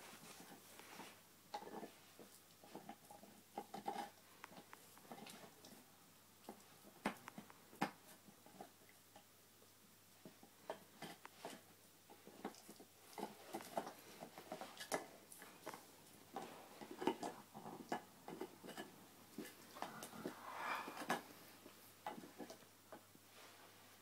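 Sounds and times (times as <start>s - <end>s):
dog gnawing on antler chew: 1.5s - 5.8s, 10.3s - 21.4s
dog breathing: 19.4s - 21.7s.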